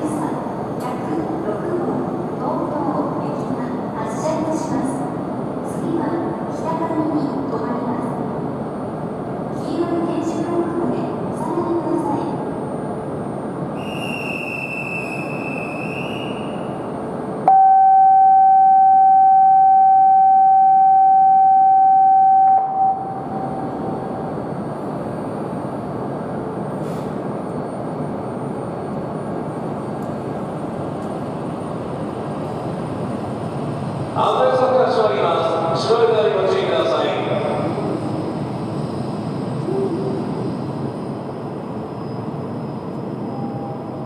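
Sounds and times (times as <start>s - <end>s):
train running with rushing noise: 0.0s - 44.0s
faint high whistle: 13.7s - 16.6s, 43.3s - 43.9s
train horn: 17.5s - 23.1s.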